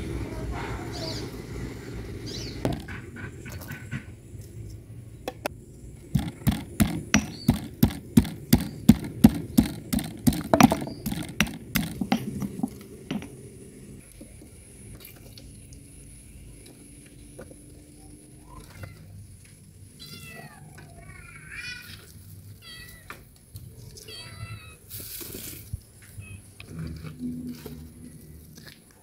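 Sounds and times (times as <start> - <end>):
stone pestle pounding in mortar: 6.2 - 13.4.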